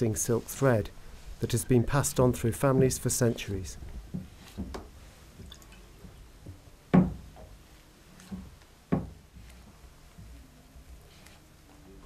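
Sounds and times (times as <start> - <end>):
knocks on wood: 6.9 - 7.3, 8.9 - 9.2.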